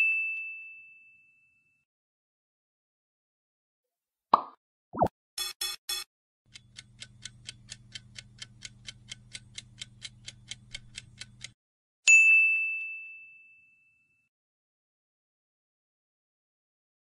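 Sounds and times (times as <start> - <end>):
timer ticking: 5.4 - 11.6.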